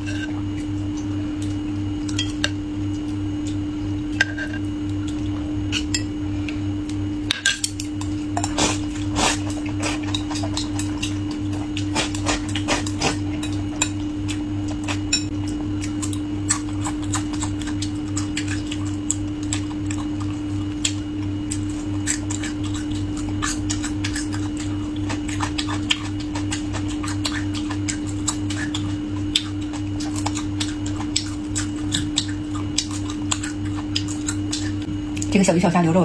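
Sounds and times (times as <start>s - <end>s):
low hum: 0.0s - 36.0s
chewing crunches: 7.8s - 35.3s.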